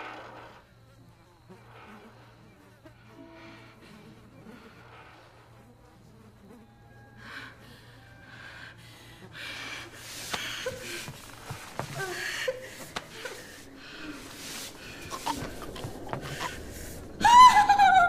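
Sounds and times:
woman breathing and whimpering: 7.2 - 18.0.

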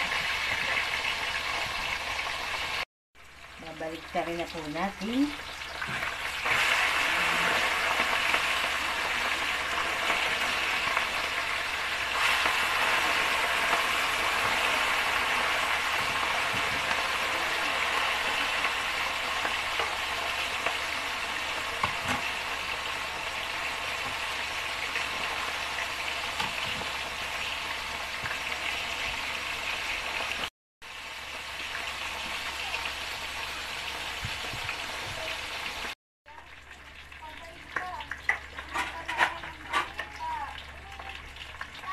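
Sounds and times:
fish sizzling in hot oil: 0.0 - 41.9.

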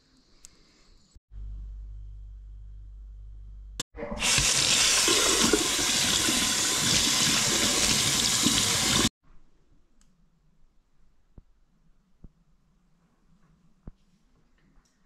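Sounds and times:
water running from tap: 4.2 - 9.1.

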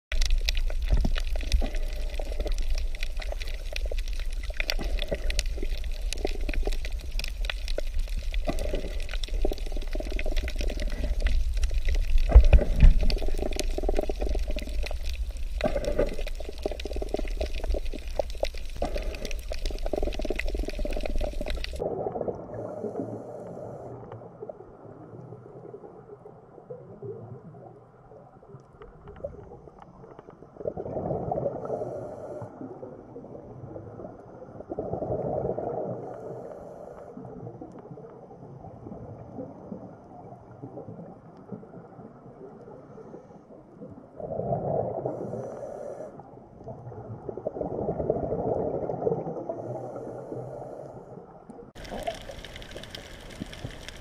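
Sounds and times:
crackle of sharp clicks: 0.1 - 21.8, 51.5 - 54.0
low underwater rumble: 0.1 - 54.0
underwater bubbling: 0.1 - 54.0.

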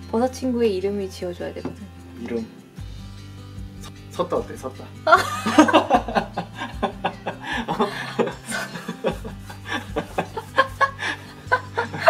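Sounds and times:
person laughing: 5.1 - 12.0.

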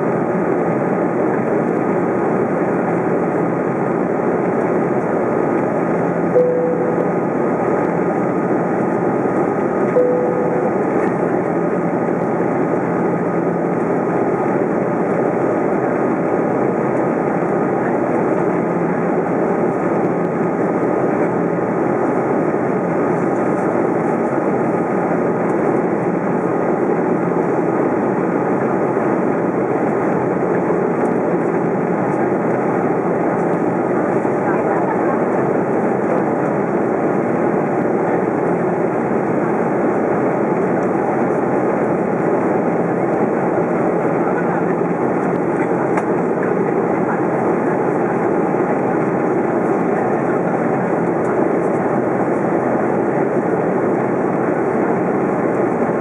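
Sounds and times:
airliner cabin engine rush: 0.0 - 56.0
short single-pitch chimes: 6.4 - 7.1, 10.0 - 10.8.

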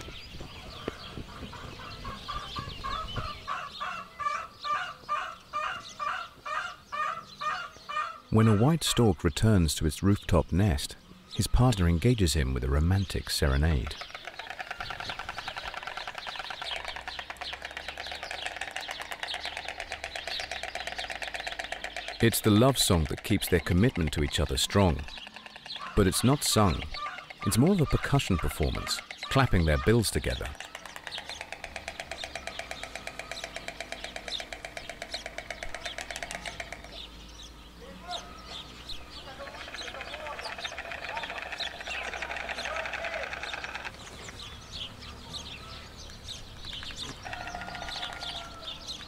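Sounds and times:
small songbirds chirping: 0.0 - 49.0
storks clattering bills: 11.4 - 37.2, 39.1 - 44.5.

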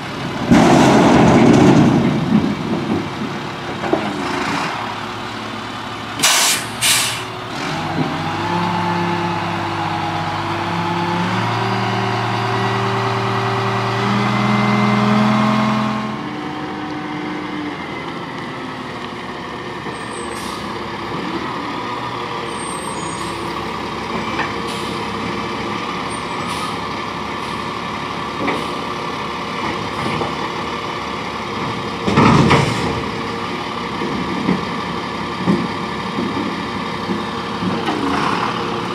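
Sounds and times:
diesel truck engine revving: 0.0 - 38.9
air brake hisses: 6.2 - 7.4, 20.2 - 20.7, 26.4 - 26.8.

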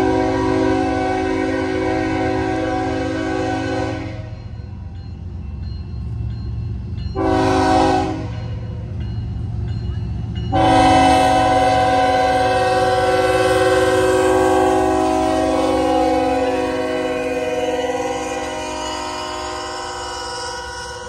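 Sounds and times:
locomotive air horn blasts: 0.0 - 4.4, 7.2 - 8.4, 10.5 - 20.4
diesel train rumble: 0.0 - 21.0.

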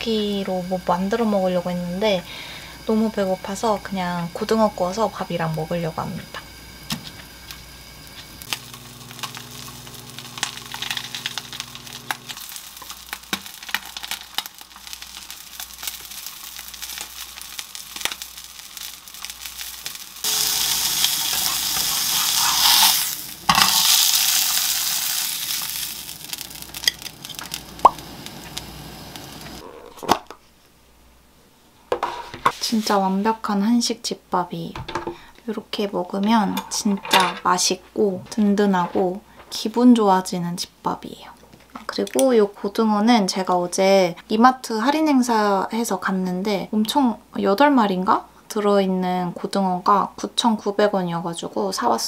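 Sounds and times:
fish sizzling in a pan: 0.0 - 29.6
utensils and dishes clicking: 26.7 - 27.5.

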